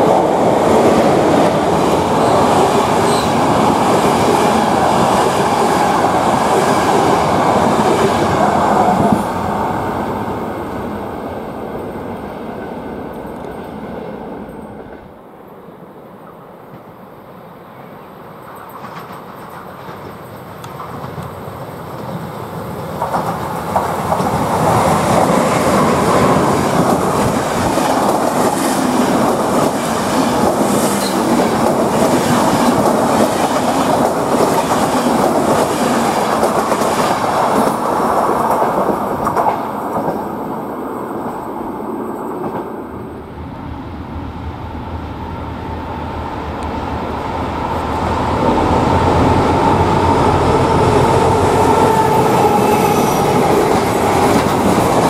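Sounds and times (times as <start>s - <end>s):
diesel locomotive engine whine: 38.8s - 55.0s.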